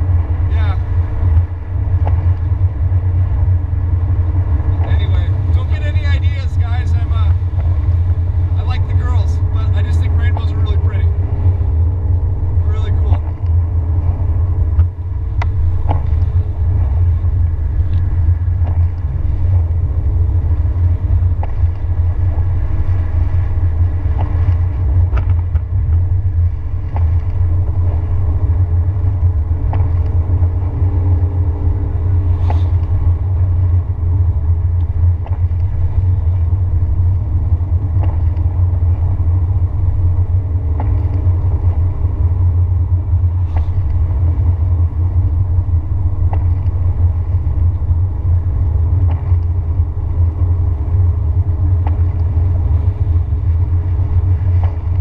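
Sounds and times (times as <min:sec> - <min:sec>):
car engine and road rumble: 0:00.0 - 0:55.0
light ticks: 0:01.3 - 0:02.6, 0:12.8 - 0:13.6, 0:14.7 - 0:16.6, 0:17.3 - 0:21.9, 0:23.9 - 0:26.1, 0:26.8 - 0:31.3, 0:32.4 - 0:33.9, 0:34.7 - 0:39.5, 0:40.6 - 0:41.8, 0:43.2 - 0:44.7, 0:46.2 - 0:50.5, 0:51.6 - 0:55.0
faint tyre hiss: 0:32.2 - 0:33.0.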